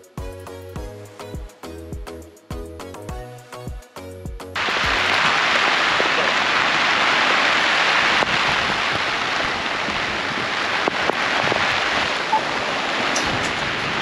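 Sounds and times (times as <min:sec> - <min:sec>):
steady rain falling: 0:04.6 - 0:14.0.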